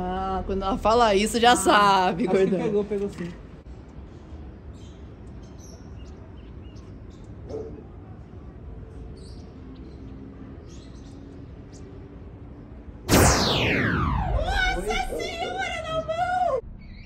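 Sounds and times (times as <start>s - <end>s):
small birds chirping: 4.1s - 8.0s, 8.9s - 12.7s.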